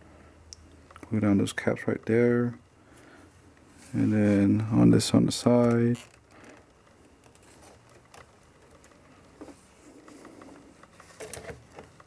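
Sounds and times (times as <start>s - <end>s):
faint clicks and rustling: 2.9s - 12.0s.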